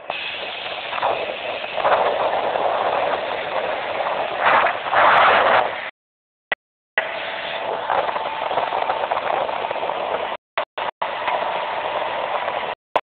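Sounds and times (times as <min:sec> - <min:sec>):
rush of wind and water spray: 0:00.0 - 0:05.9, 0:07.0 - 0:10.4, 0:11.0 - 0:12.8
speed boat running fast: 0:07.0 - 0:10.4, 0:11.0 - 0:12.8.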